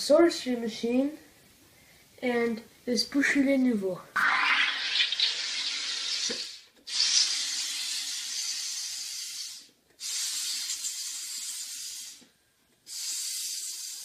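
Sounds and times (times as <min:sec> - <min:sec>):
carbonator gas hissing: 0:04.2 - 0:12.3, 0:12.9 - 0:14.0.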